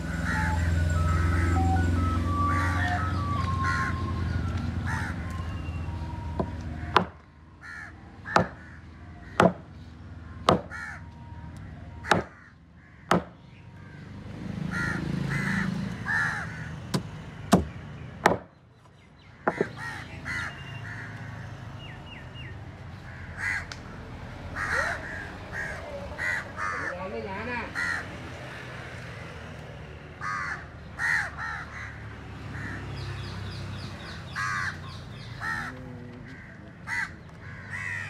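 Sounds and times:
crows cawing: 0.0 - 1.7, 2.3 - 4.2, 4.8 - 5.5, 6.4 - 17.0, 19.4 - 21.9, 23.0 - 28.3, 30.2 - 38.0
knife chopping fish on wood: 8.4 - 8.6, 12.1 - 12.3, 13.1 - 13.3.

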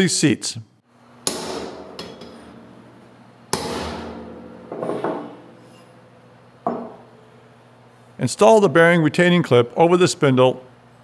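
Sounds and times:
hammer striking metal: 1.2 - 2.6, 3.5 - 5.3.

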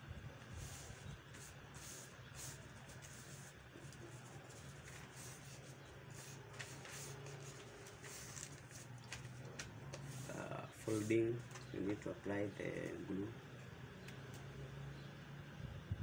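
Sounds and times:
low steady hum: 0.0 - 16.0
paper rustling and creasing: 0.6 - 12.0.

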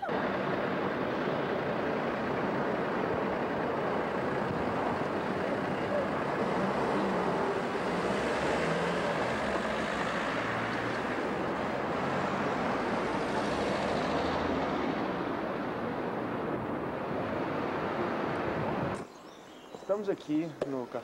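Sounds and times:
low engine drone: 0.0 - 8.1
city street traffic: 0.0 - 21.0.

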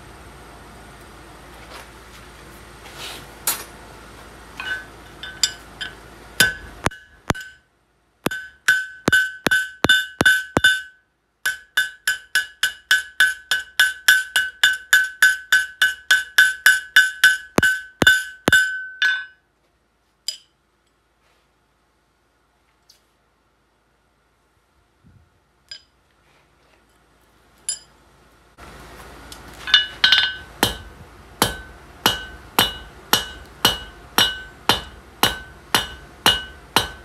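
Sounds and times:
hammer striking steel on anvil: 4.6 - 7.7, 8.3 - 19.4, 27.7 - 27.9, 29.7 - 37.0.

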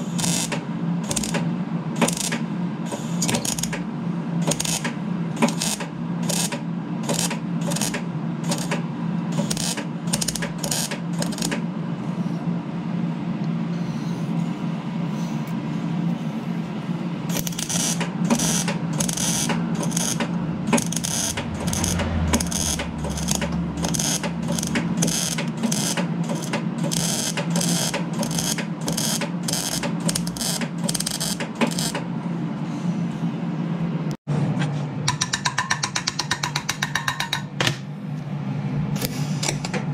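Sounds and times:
welder arc crackle: 0.0 - 1.4, 2.0 - 3.8, 4.4 - 8.8, 9.4 - 11.6, 17.3 - 32.0
steady low hum: 0.0 - 35.2.

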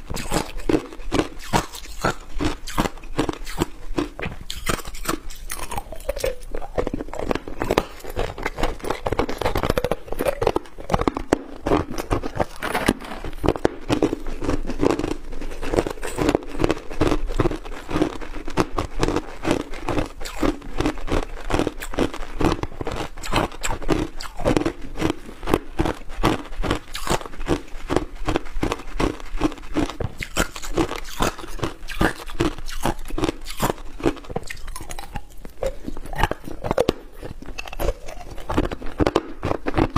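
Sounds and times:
ice being chewed: 0.0 - 39.9.

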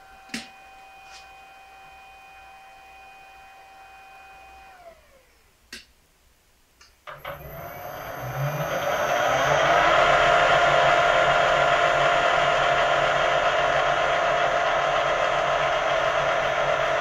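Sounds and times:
small lathe motor whine: 0.0 - 5.4, 7.1 - 17.0.

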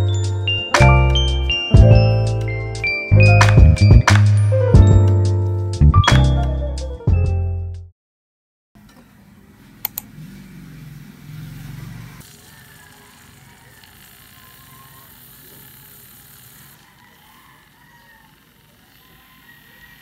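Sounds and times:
quick clicks: 9.8 - 10.1
milk frother motor hum: 11.4 - 20.0.

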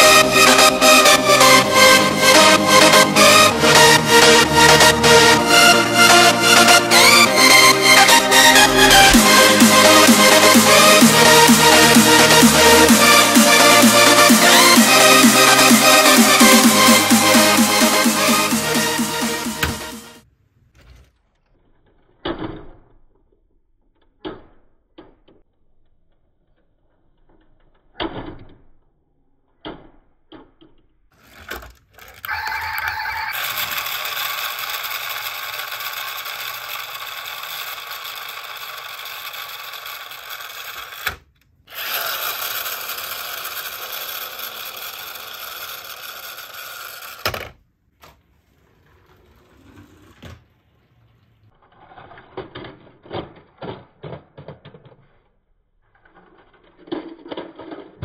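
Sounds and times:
pull-back motor gears whirring: 31.2 - 47.3.

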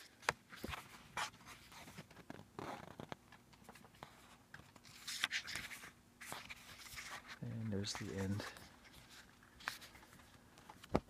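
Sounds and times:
booklet pages flipping: 0.0 - 11.0.

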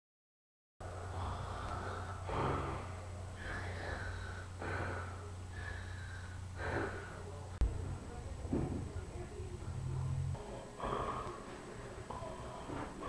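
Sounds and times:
person breathing heavily: 0.8 - 7.5, 10.6 - 13.0
steady low hum: 0.8 - 13.0.

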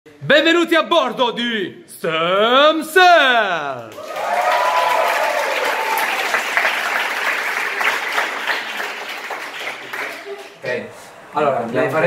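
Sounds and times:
audience applauding: 3.7 - 10.6.

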